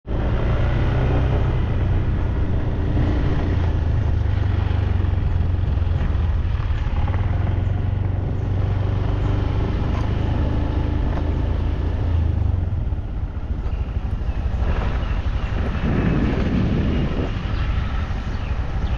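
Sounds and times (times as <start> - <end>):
motorbike engine running: 0.1 - 18.9.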